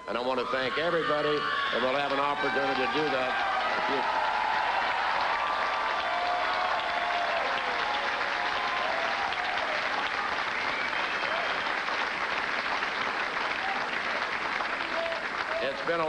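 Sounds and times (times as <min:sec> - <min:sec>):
crowd applauding: 0:00.0 - 0:16.0.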